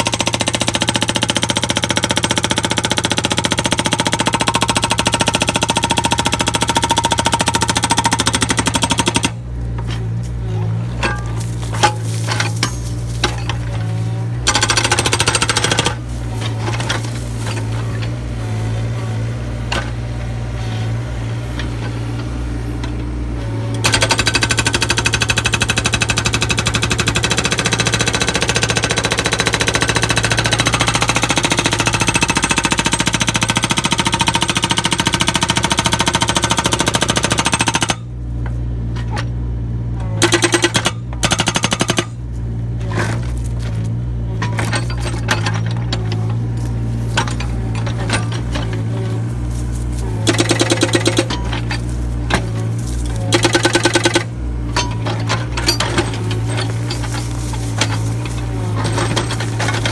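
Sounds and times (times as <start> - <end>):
hydraulic breaker hammering rock: 0.0 - 9.4, 14.4 - 17.7, 23.8 - 38.1, 40.0 - 42.2, 50.0 - 59.9
low hum of machine: 2.3 - 59.9.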